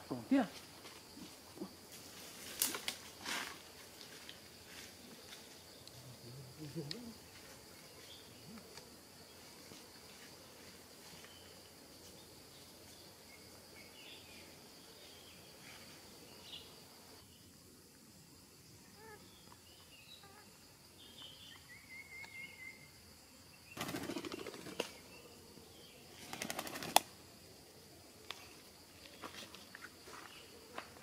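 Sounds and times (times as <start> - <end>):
faint bird chirps: 18.8 - 23.0
parakeet wings flapping: 23.8 - 25.0, 26.2 - 27.1.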